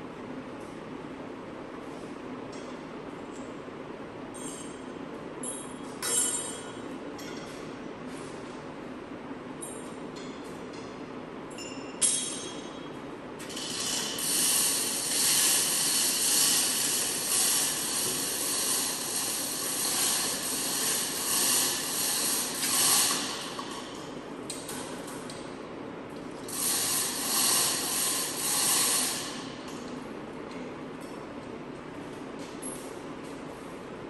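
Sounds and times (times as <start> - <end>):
steady low hum: 0.0 - 34.0
compressed air hissing: 26.5 - 29.4.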